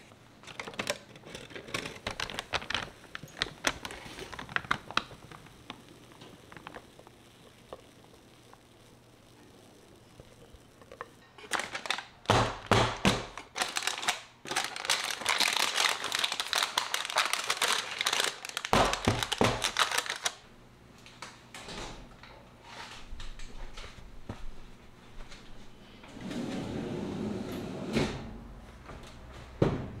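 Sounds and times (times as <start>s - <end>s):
parchment paper crinkling: 0.4s - 7.9s, 10.8s - 20.4s.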